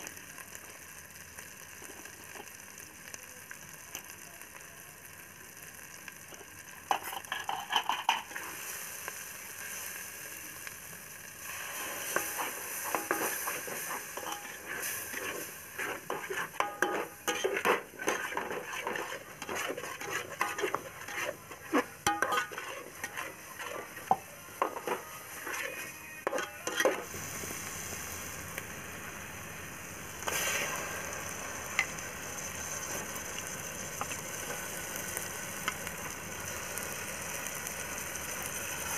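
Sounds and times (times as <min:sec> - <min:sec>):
paste sizzling in hot oil: 0:00.0 - 0:38.9
ladle scraping a metal pot: 0:07.0 - 0:08.4, 0:12.0 - 0:27.1.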